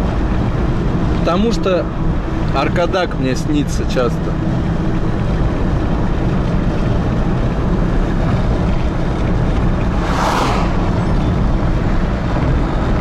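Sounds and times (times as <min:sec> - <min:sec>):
car road and engine rumble: 0:00.0 - 0:13.0
short rushing sound: 0:09.4 - 0:12.3.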